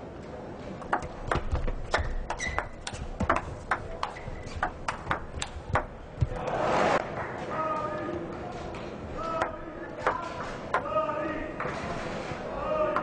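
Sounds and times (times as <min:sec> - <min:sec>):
table tennis ball clicking: 0:00.8 - 0:06.4.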